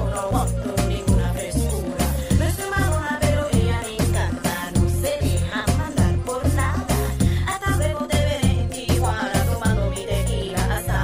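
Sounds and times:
latin pop dance music: 0.0 - 11.0.

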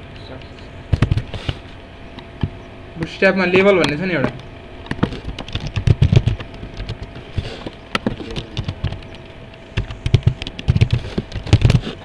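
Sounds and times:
keyboard typing: 4.9 - 7.1, 8.0 - 9.2, 9.8 - 11.8.

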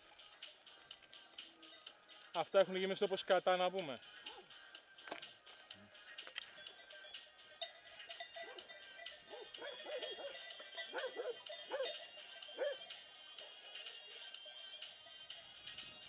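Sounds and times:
dogs barking: 4.2 - 4.5, 8.4 - 14.3.

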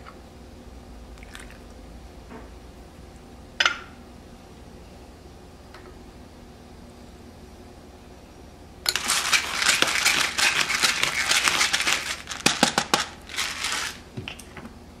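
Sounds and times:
pepper grinder grinding: 8.9 - 14.1.

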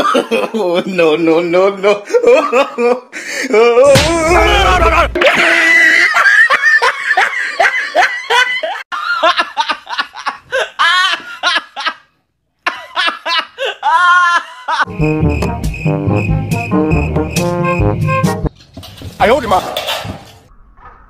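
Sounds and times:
women cackling with laughter: 4.4 - 12.1, 12.7 - 14.9.

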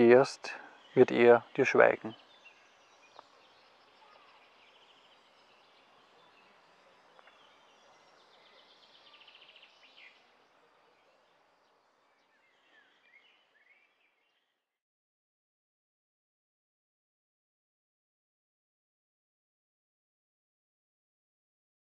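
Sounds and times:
birds chirping: 0.0 - 14.6.

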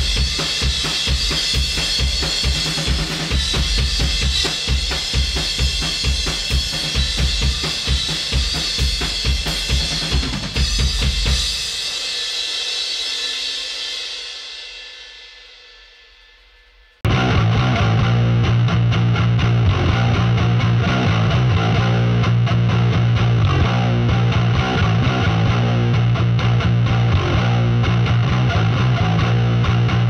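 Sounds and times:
cymbal ringing out: 0.0 - 17.0
rock drum kit playing: 0.0 - 30.0.

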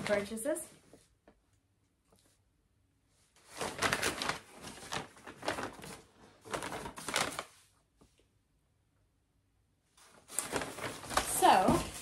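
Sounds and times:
paper bag and box rustling: 0.0 - 0.5, 3.4 - 7.7, 10.0 - 12.0.

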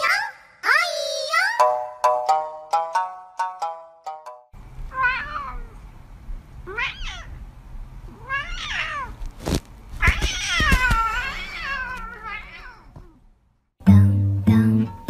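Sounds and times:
cat meowing: 4.9 - 5.8, 6.6 - 7.4, 8.1 - 9.2, 10.0 - 13.2.

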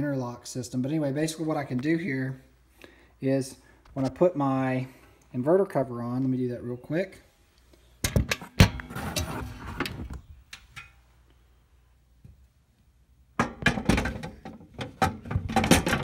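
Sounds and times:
metal panel knocking and clanking: 13.4 - 16.0.

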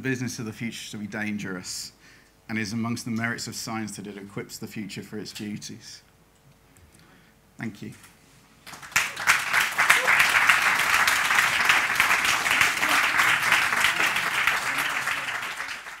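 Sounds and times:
audience applauding: 8.6 - 16.0.

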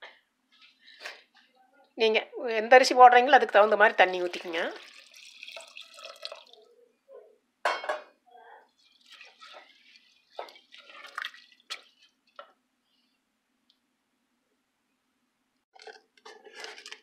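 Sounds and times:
wooden spoon stirring in metal pot: 3.5 - 6.7, 8.6 - 12.6, 15.8 - 17.0.

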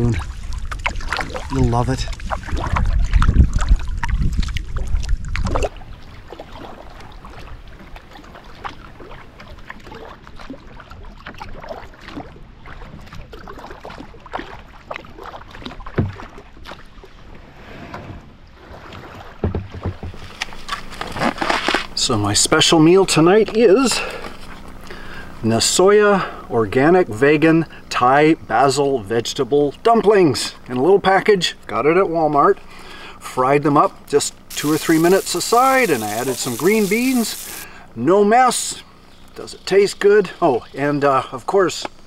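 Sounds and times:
wind rumbling on microphone: 0.0 - 8.1
paddle strokes splashing: 0.0 - 17.4, 18.6 - 22.0, 34.5 - 37.8.

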